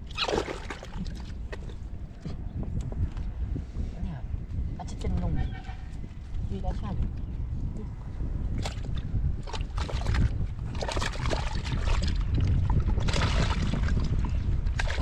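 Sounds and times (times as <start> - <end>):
wind on microphone: 0.0 - 15.0
hands scraping and splashing mud: 8.6 - 15.0.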